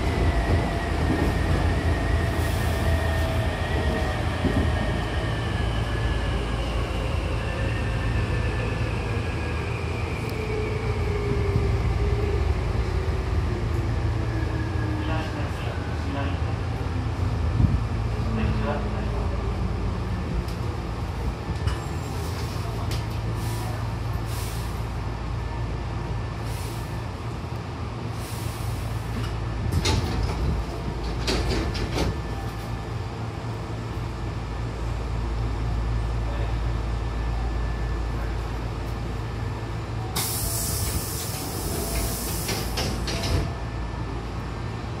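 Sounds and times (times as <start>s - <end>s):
train doors opening and closing: 0.0s - 8.2s, 21.4s - 24.9s, 28.2s - 33.1s, 39.6s - 44.1s
low hum of stopped train: 0.0s - 45.0s
air hissing: 40.2s - 43.0s.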